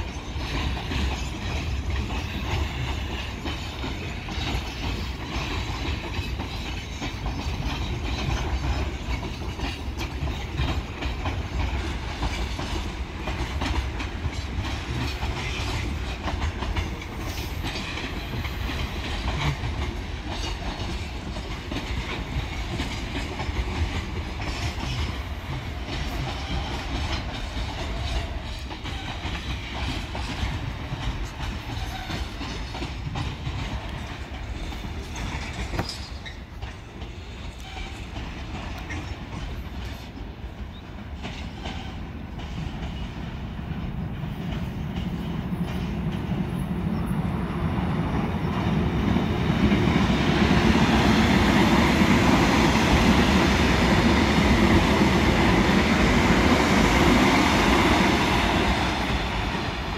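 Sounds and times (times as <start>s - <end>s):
wheels clicking over rail joints: 0.0s - 46.8s
freight train rumbling: 0.0s - 59.9s.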